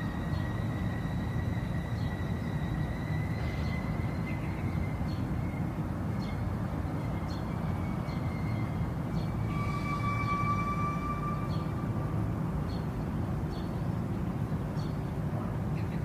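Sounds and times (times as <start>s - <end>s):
train rumbling on rails: 0.0s - 16.0s
high ringing tone: 7.0s - 12.6s.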